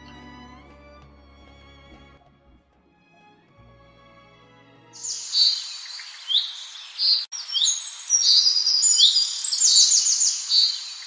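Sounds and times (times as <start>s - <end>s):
faint hiss: 5.0s - 11.0s
small birds chirping: 5.0s - 11.0s.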